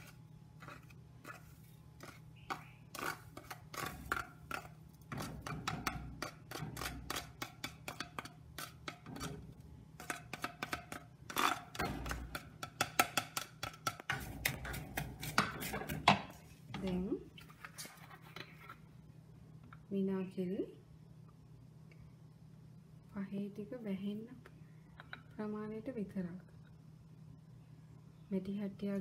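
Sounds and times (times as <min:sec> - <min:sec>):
plastic spoon scraping and tapping: 0:00.0 - 0:09.4, 0:10.0 - 0:18.8.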